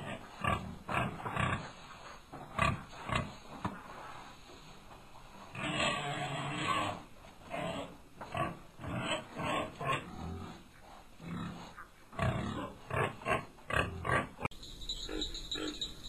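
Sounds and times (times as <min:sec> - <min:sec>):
farm animal calling: 0:11.2 - 0:16.0.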